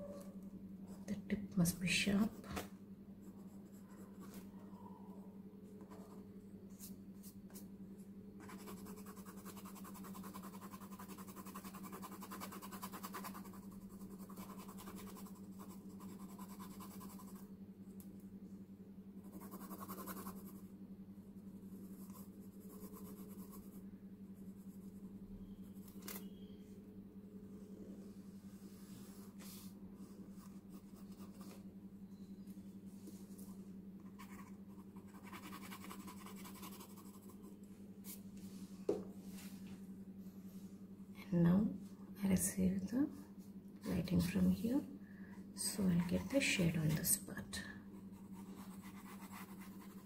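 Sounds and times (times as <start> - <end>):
steady low hum: 0.0 - 50.0
pencil scratching on paper: 8.4 - 17.4, 19.2 - 20.6, 21.8 - 23.8, 34.1 - 37.4, 48.2 - 50.0.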